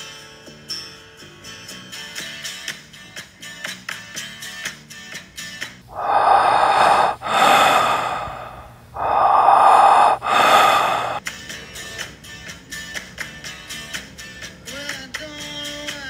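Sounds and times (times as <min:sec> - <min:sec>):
person breathing heavily: 0:05.9 - 0:11.2.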